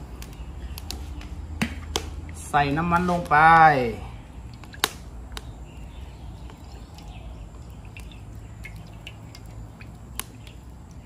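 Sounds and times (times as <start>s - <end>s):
faint bird chirps: 4.0s - 11.0s.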